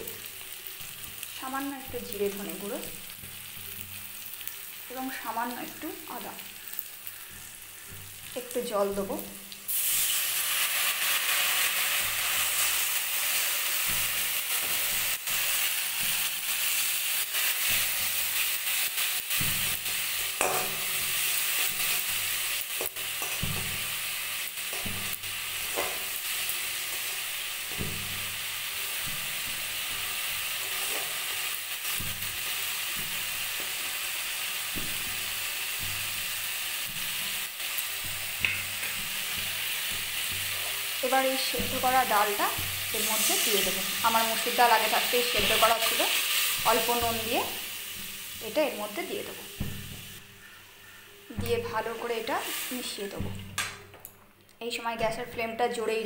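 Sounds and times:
masala sizzling in hot oil: 0.0 - 53.7
water splashing into hot pan: 9.2 - 50.3.

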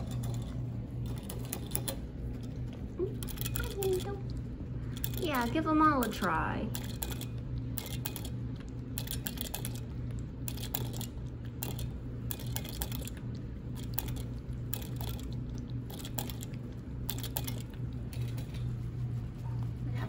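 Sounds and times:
metallic clicks of licking spout: 0.0 - 18.7
steady low hum: 0.0 - 20.0.

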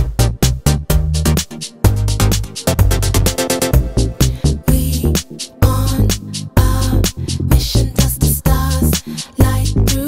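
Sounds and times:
rhythmic music with bass line: 0.0 - 10.0.

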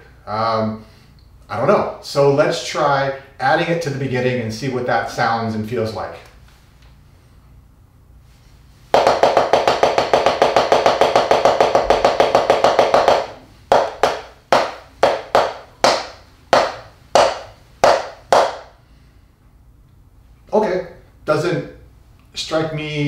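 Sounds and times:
drumsticks striking a practice pad: 9.0 - 18.7.

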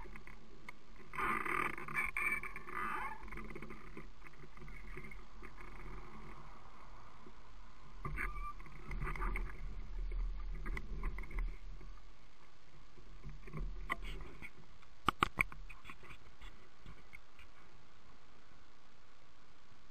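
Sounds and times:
microphone hiss: 0.0 - 19.9
sharp clicks: 13.3 - 17.6.

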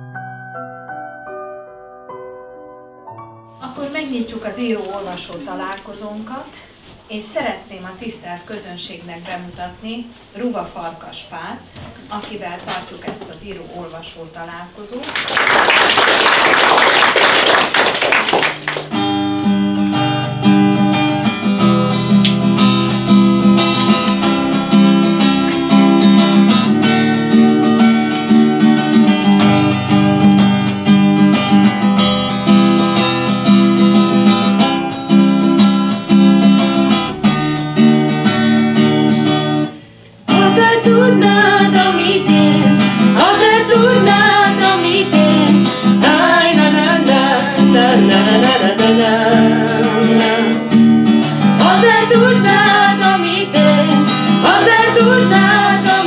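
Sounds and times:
acoustic guitar chords: 0.0 - 5.3, 16.0 - 56.0
person singing: 40.3 - 50.9, 51.5 - 56.0.

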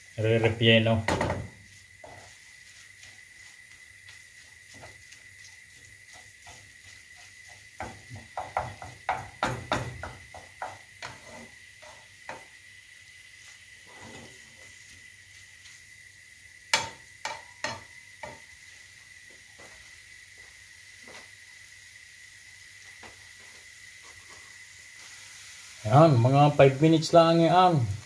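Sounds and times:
meat sizzling in frying pan: 0.0 - 28.0
wooden spoon scraping pan: 1.0 - 9.2, 10.0 - 12.5, 13.8 - 14.7.

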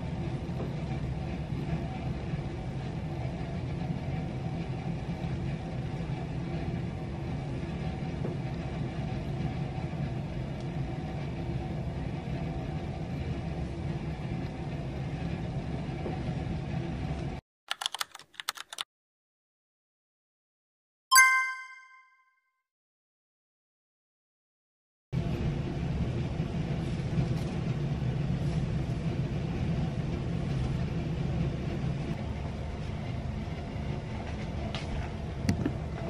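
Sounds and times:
low mechanical hum with hiss: 0.0 - 17.4, 25.2 - 36.0
quick bright dings: 21.1 - 22.2.

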